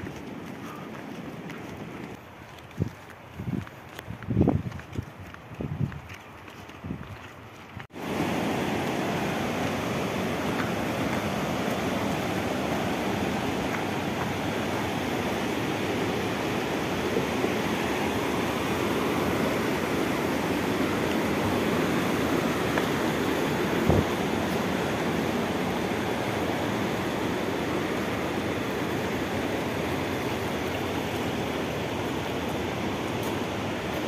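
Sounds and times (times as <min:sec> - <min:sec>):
footsteps: 0:00.0 - 0:15.4
river rushing: 0:07.9 - 0:34.0.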